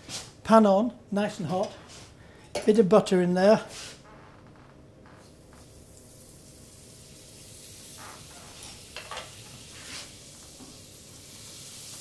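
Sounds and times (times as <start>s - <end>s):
butter sizzling in a frying pan: 5.4s - 12.0s.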